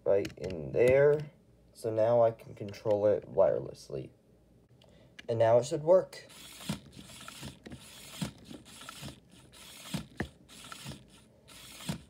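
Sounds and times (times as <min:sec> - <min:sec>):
small electric motor whirring: 0:06.3 - 0:12.0.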